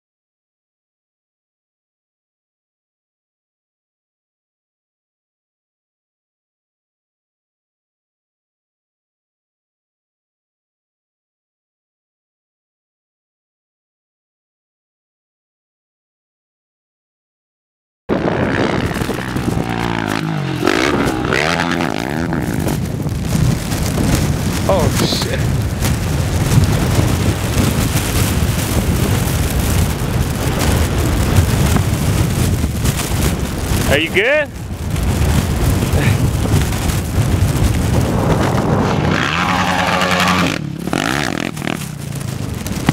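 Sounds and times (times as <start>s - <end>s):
quad engine revving: 18.1s - 22.8s, 38.0s - 42.9s
atv engine revving: 18.1s - 34.2s, 35.0s - 42.9s
wind rumble on microphone: 18.1s - 42.9s.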